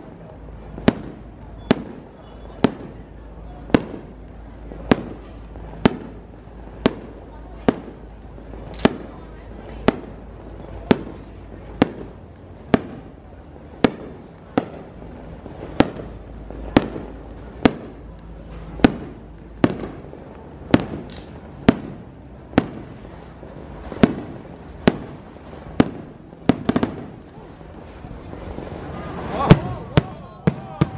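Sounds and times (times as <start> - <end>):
firework shells banging: 20.8 - 27.2.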